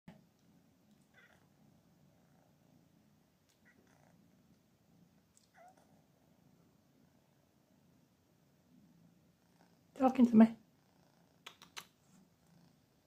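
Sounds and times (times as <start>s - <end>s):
kittens purring: 0.1s - 13.0s.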